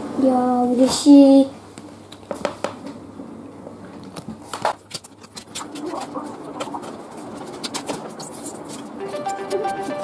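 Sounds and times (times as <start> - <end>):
cards clicking and rustling: 4.2 - 10.0.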